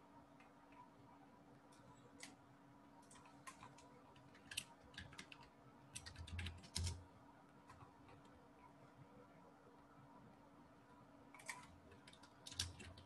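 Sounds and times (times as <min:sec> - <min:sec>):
typing on computer keyboard: 0:03.0 - 0:07.0, 0:11.4 - 0:13.0.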